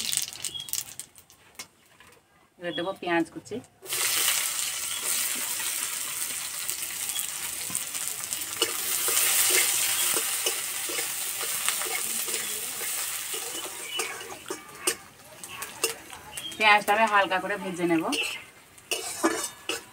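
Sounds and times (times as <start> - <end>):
onions sizzling in hot oil: 0.0 - 1.1, 3.8 - 19.9
metal spatula scraping pan: 8.5 - 16.1, 18.1 - 19.9.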